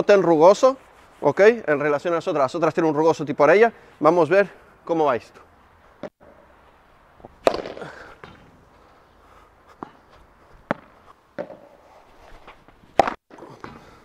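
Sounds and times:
ball hitting rackets: 0:07.2 - 0:08.7, 0:09.8 - 0:14.0
ball bouncing on court: 0:10.7 - 0:11.7.

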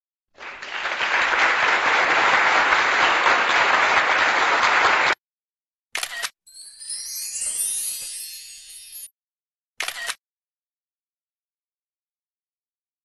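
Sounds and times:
crowd clapping: 0:00.3 - 0:05.2.

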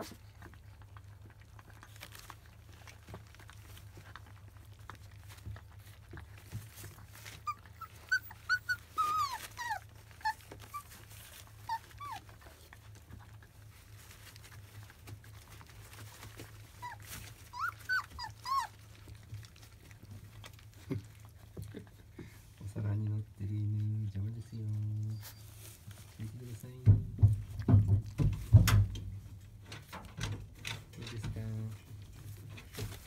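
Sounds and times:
puppies whimpering and squeaking: 0:04.8 - 0:22.6, 0:24.5 - 0:26.2.

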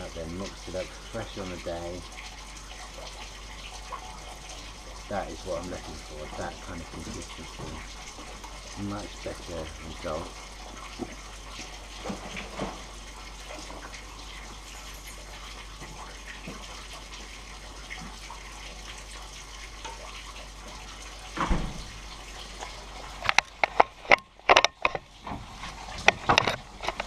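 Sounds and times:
sharp knocks and clatters: 0:23.2 - 0:27.0.

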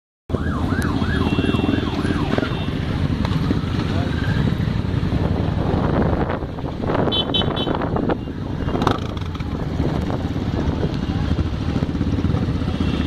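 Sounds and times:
warbling siren: 0:00.3 - 0:02.8
motorcycle engines rumbling: 0:00.3 - 0:13.0.

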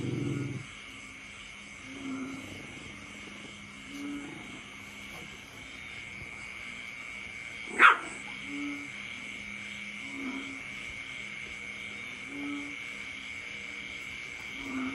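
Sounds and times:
puppy barking: 0:07.7 - 0:08.2.

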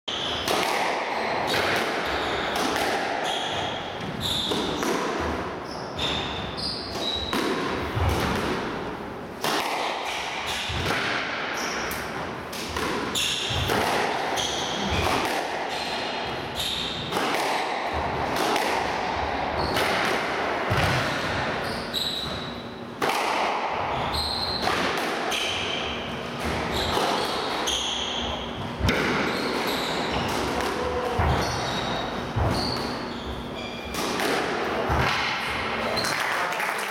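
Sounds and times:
squash ball hits: 0:00.1 - 0:33.1, 0:33.9 - 0:36.1
shoes squeaking on wooden floor: 0:31.2 - 0:33.9.

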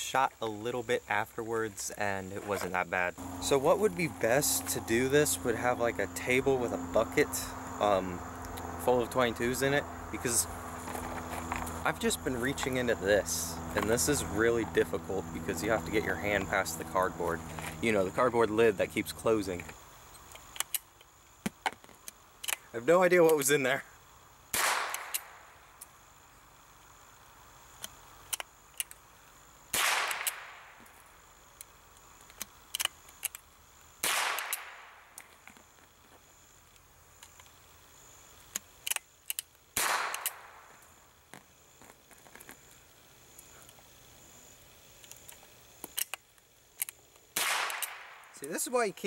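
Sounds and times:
rifle shots with echo: 0:24.6 - 0:25.1, 0:29.7 - 0:30.6, 0:34.0 - 0:34.8, 0:39.8 - 0:40.6, 0:47.4 - 0:48.2
rifle bolt clicks and rattles: 0:32.3 - 0:33.4, 0:38.5 - 0:39.5, 0:45.0 - 0:46.2.

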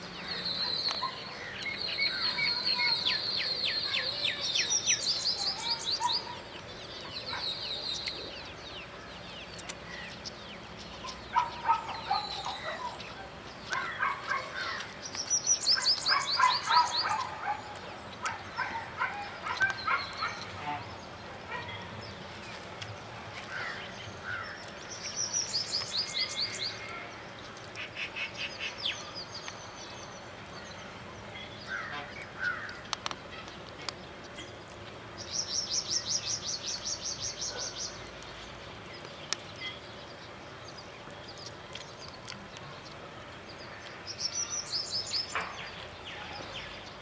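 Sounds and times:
birds trilling: 0:00.0 - 0:22.2, 0:23.4 - 0:47.0
bird chirps: 0:00.2 - 0:20.9.

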